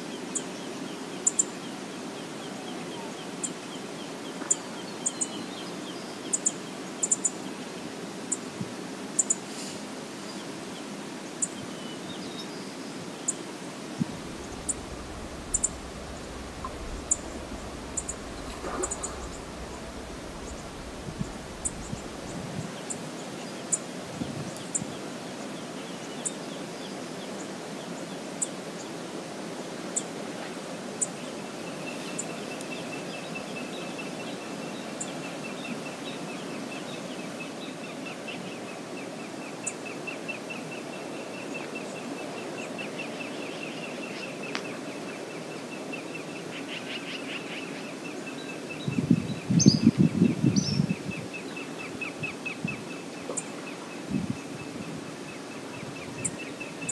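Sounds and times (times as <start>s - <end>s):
fast river rushing: 13.5s - 23.2s
low rumbling buffets: 13.9s - 22.9s
fast high ticking: 14.0s - 22.5s
high bird chirps: 14.2s - 22.4s.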